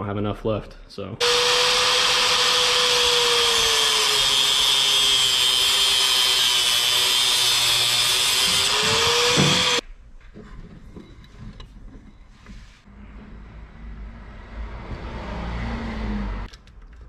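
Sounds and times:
angle grinder cutting: 1.2s - 9.8s.

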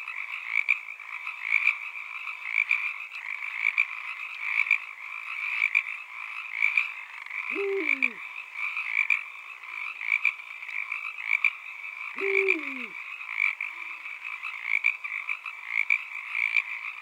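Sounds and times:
dense chorus of calling animals: 7.5s - 8.2s, 12.2s - 13.0s
low falling animal calls: 7.5s - 8.2s, 12.2s - 13.0s.

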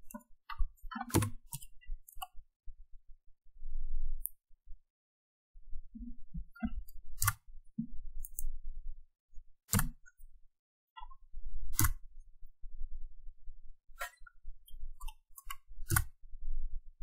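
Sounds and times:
computer mouse and keyboard clicks: 0.0s - 2.4s, 6.6s - 7.5s, 9.7s - 10.2s, 11.7s - 12.1s, 15.0s - 16.2s.

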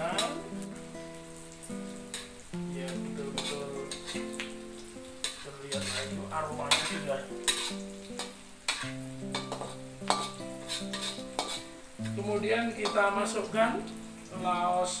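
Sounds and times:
food sizzling in oil: 0.0s - 15.0s
spatula scraping and knocking wok: 1.9s - 2.4s, 3.1s - 4.4s, 5.2s - 12.2s.

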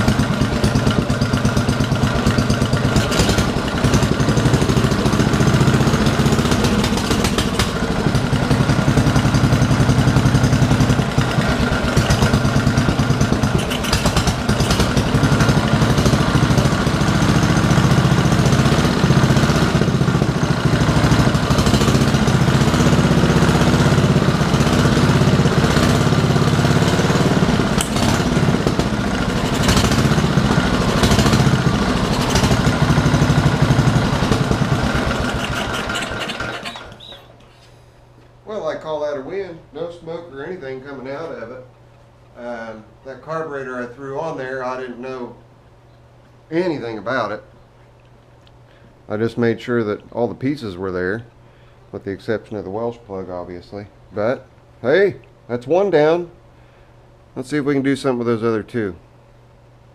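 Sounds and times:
engine running: 0.0s - 38.8s.

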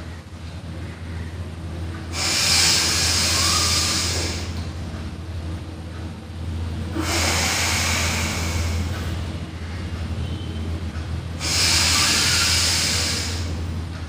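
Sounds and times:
low steady hum: 0.0s - 14.0s
man breathing deeply: 2.1s - 4.6s, 6.9s - 9.2s, 11.4s - 13.6s.

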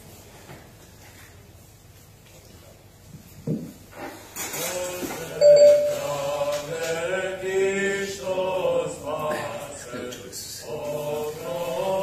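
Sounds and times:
group chanting through laptop speaker: 4.5s - 12.0s.

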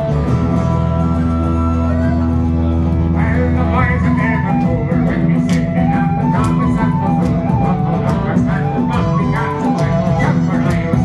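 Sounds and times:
bass guitar: 0.0s - 11.0s
strummed guitars: 0.0s - 11.0s
fiddle and tin whistle melody: 3.8s - 10.6s.

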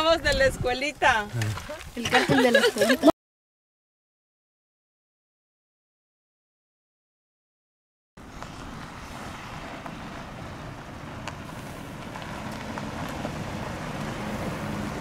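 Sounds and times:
wind on microphone: 0.0s - 2.1s
tyres on dirt track: 0.0s - 3.1s, 8.2s - 15.0s
gravel clicks: 8.2s - 14.2s
vehicle engines humming: 8.2s - 15.0s.

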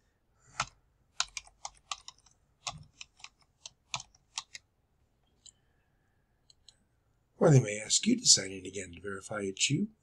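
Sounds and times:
computer keyboard typing: 0.5s - 4.7s.

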